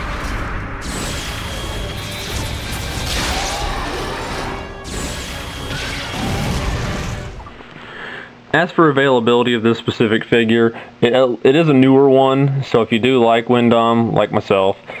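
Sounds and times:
crashing impact sound effects: 0.0s - 7.6s
fight soundtrack music: 0.0s - 7.6s.

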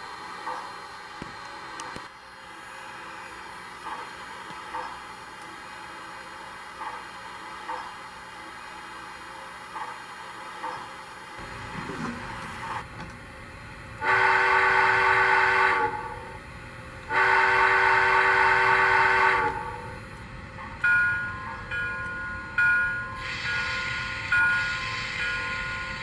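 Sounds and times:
locomotive chime whistle blasts: 14.0s - 16.2s, 17.1s - 19.9s
slow bell strokes: 20.8s - 26.0s.

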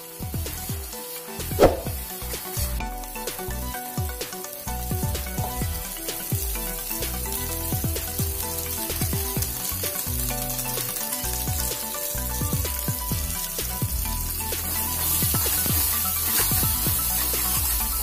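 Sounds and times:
background music: 0.0s - 18.0s
spice paste sizzling in oil: 0.0s - 18.0s.

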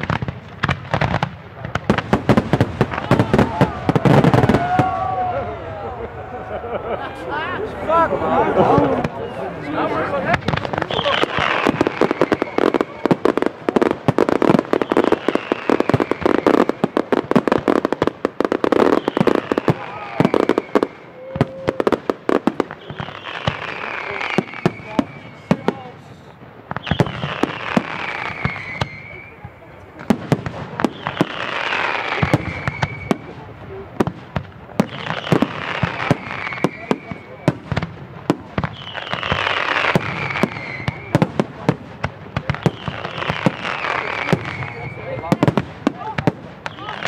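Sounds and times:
fireworks bursting: 0.0s - 47.0s
hissing crackle: 10.0s - 47.0s.

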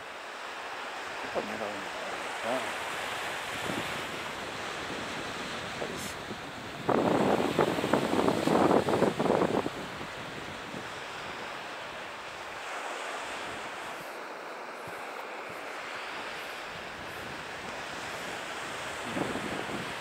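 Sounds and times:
waves washing over rocks: 0.0s - 20.0s.

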